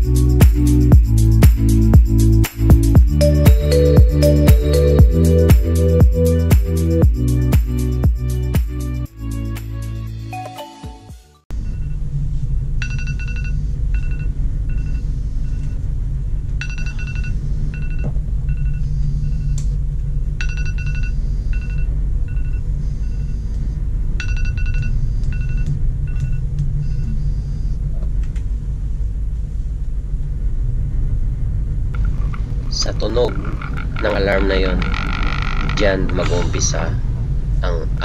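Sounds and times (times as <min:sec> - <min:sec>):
phone alarm beeping: 0:20.4 - 0:27.6
low ship engine rumble: 0:21.1 - 0:38.0.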